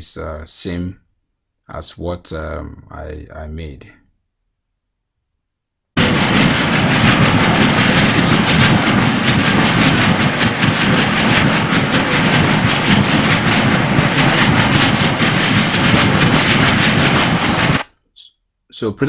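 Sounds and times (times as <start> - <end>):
steam jet venting loudly: 6.0 - 17.8.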